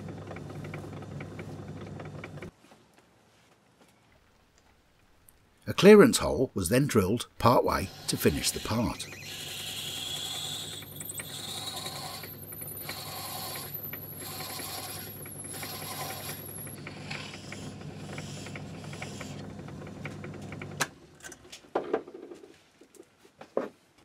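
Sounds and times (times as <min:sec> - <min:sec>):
lathe motor hum: 0:00.0 - 0:02.5, 0:07.8 - 0:20.9
drill cutting with high whine: 0:07.7 - 0:17.5.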